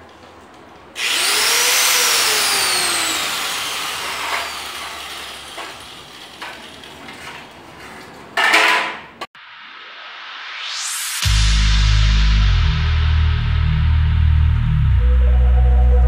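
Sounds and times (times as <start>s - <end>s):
angle grinder whining: 1.0s - 7.2s.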